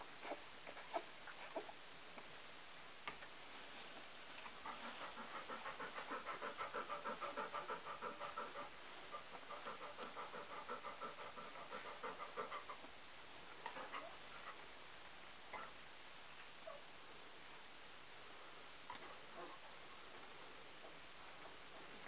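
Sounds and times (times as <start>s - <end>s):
dog panting rapidly: 4.4s - 14.7s.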